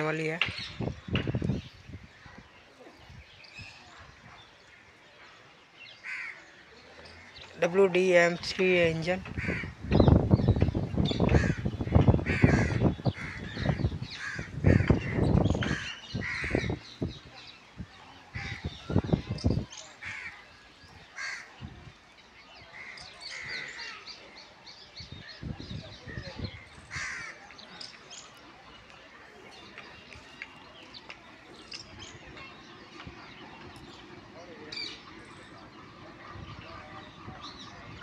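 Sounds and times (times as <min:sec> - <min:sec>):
small birds chirping: 0:00.0 - 0:38.0
crows cawing: 0:06.0 - 0:06.4, 0:09.4 - 0:09.8, 0:11.3 - 0:16.7, 0:20.0 - 0:20.4, 0:21.2 - 0:21.5, 0:26.9 - 0:27.4.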